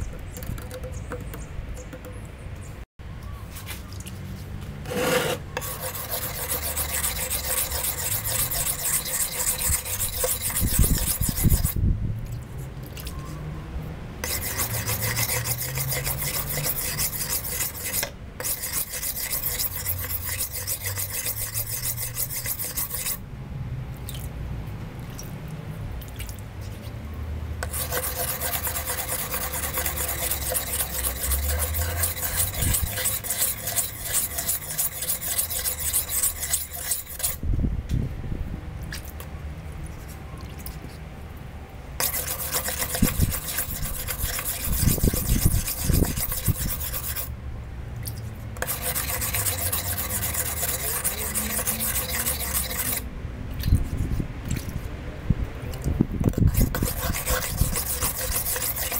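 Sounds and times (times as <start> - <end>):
knife grinding on sharpening stone: 4.9 - 11.8, 14.2 - 23.2, 27.6 - 37.4, 42.0 - 47.3, 48.6 - 53.0, 56.3 - 58.9.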